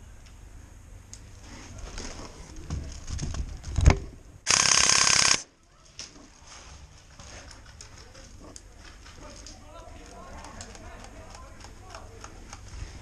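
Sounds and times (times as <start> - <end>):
airsoft rifle full-auto burst: 4.5 - 5.5.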